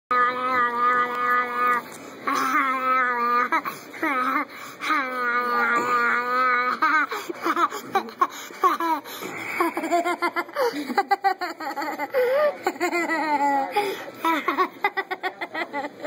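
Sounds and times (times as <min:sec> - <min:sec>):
child giggling: 0:06.8 - 0:16.0.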